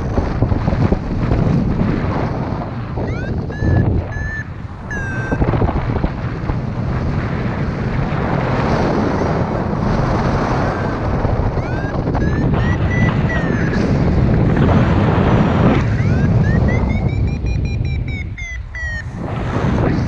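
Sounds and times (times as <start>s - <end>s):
wind rushing over microphone: 0.0s - 20.0s
high electronic beeps: 3.0s - 5.5s, 11.6s - 13.8s, 15.8s - 19.2s.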